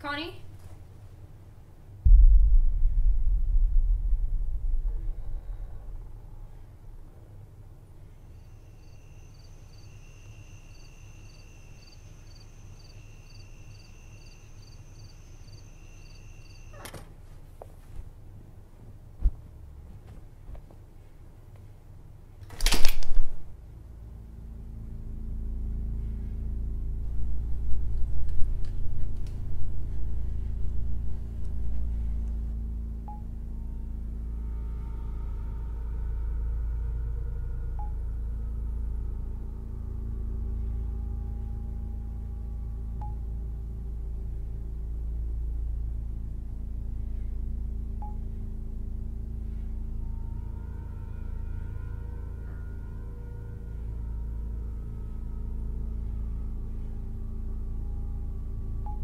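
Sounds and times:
low background rumble: 0.0 - 59.0
steady hum: 0.0 - 59.0
crickets chirping: 8.0 - 16.9.

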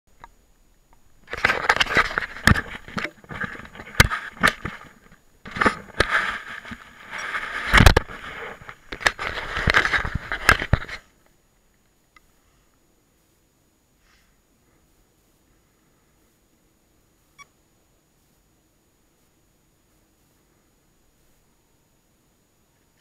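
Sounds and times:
microphone handling noise: 1.2 - 11.1.

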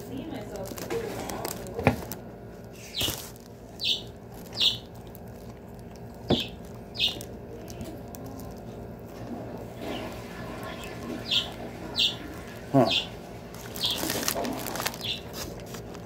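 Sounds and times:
chewing and lip smacking: 2.7 - 12.8, 13.5 - 16.0.

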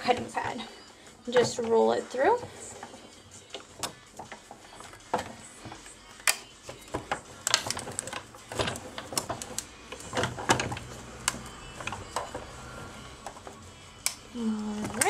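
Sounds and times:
hand-cranked machine clicks and knocks: 0.0 - 0.7, 1.3 - 15.0.

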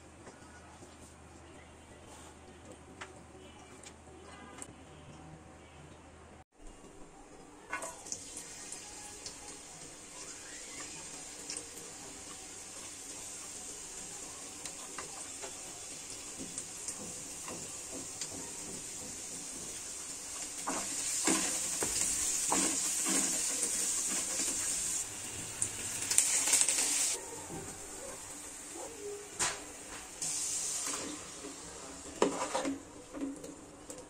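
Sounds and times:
onion and garlic sizzling in oil: 7.8 - 34.0
wooden spatula scraping a pan: 16.4 - 25.0, 32.0 - 33.3.

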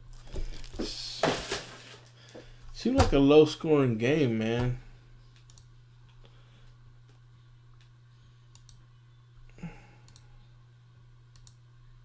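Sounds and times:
low electrical hum: 0.0 - 12.0
faint computer clicks: 10.1 - 10.3, 11.3 - 11.6.

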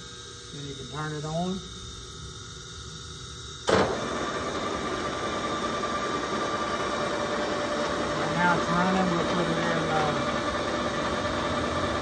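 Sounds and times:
lathe running with whine: 0.0 - 12.0
lathe spindle clunk: 3.7 - 4.2.

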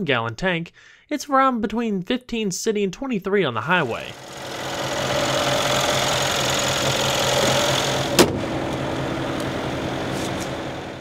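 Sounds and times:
car engine idling: 3.8 - 11.0
car hood thumping shut: 8.1 - 8.6.

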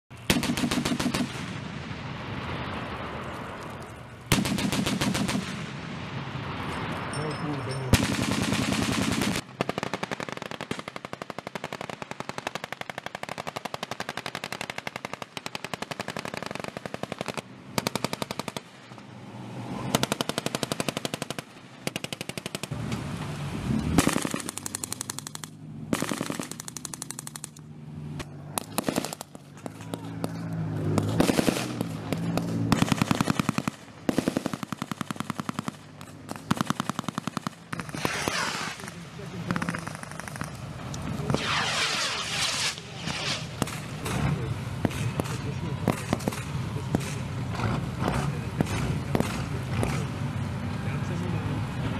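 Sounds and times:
automatic gunfire bursts: 0.3 - 1.5, 4.3 - 5.6, 7.9 - 18.7, 19.9 - 22.7, 24.0 - 27.6, 28.6 - 29.4, 31.1 - 38.9.

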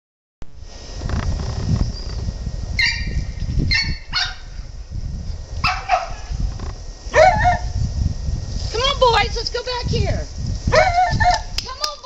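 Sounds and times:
low rumbling noise: 0.5 - 12.0
dog barking: 3.7 - 4.5, 5.6 - 6.3, 7.1 - 7.7.

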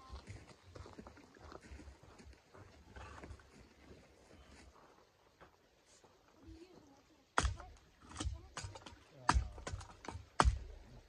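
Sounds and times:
footsteps: 0.0 - 7.0.

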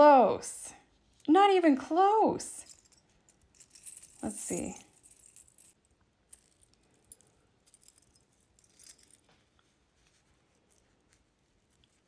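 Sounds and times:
metal rings jingling: 2.6 - 9.3.

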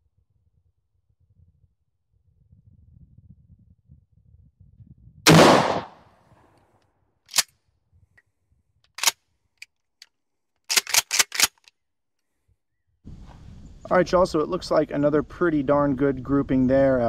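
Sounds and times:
shotgun shot: 5.3 - 6.0.

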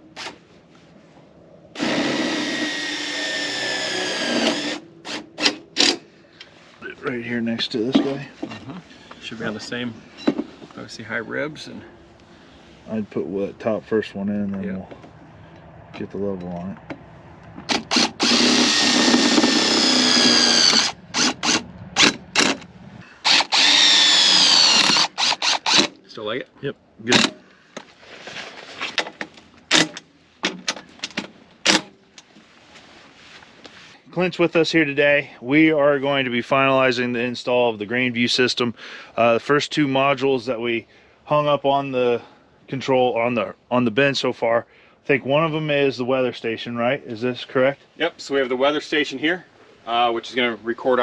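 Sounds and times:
cordless drill driving bolt: 1.8 - 6.0, 17.7 - 26.0.

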